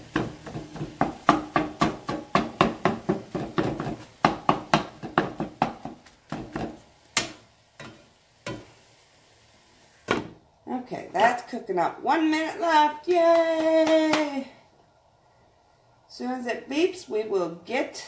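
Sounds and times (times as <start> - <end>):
spatula tapping frying pan: 0.0 - 8.8.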